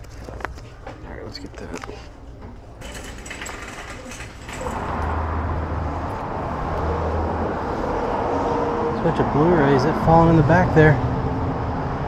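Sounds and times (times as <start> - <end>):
car road and engine noise: 4.3 - 12.0.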